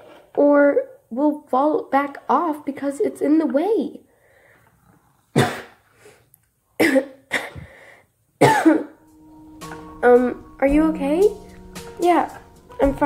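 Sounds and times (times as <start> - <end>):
person coughing: 5.4 - 5.8, 6.8 - 7.8, 8.4 - 9.0.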